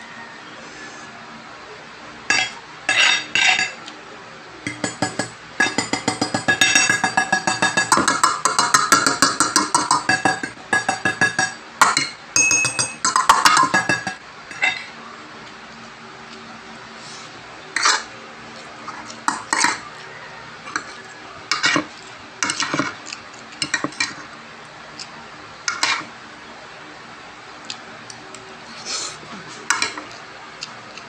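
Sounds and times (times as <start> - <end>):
cutlery clinking on a plate: 2.3 - 3.8, 4.7 - 14.9, 18.9 - 19.8, 20.7 - 23.0, 23.6 - 24.2, 29.7 - 30.2.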